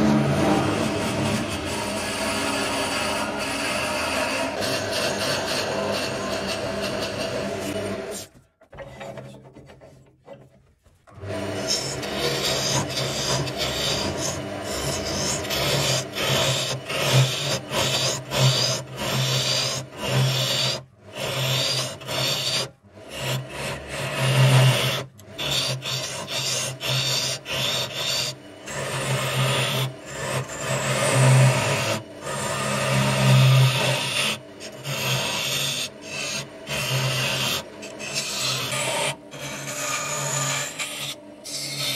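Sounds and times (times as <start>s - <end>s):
motor low hum: 0.0s - 8.1s
lathe tool rasping on wood: 0.0s - 9.9s, 11.1s - 41.9s.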